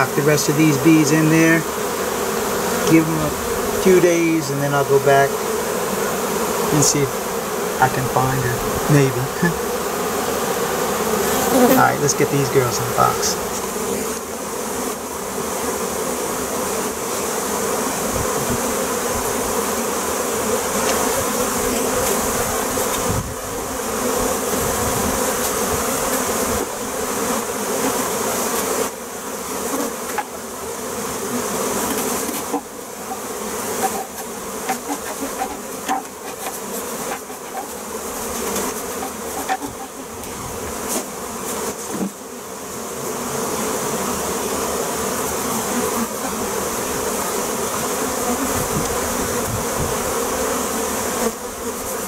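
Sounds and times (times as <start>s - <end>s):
honeybees buzzing: 0.0s - 52.0s
knocks of wooden box: 33.8s - 37.8s.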